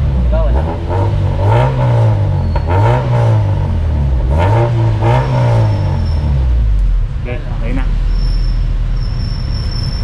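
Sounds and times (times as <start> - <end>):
car engine revving: 0.0 - 10.0.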